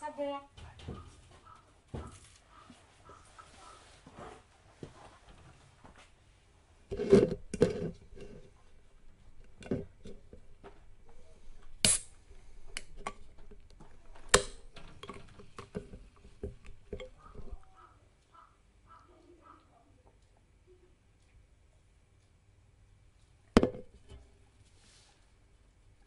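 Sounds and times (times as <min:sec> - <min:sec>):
knocks and rustles: 0:00.6 - 0:06.2, 0:13.0 - 0:17.6.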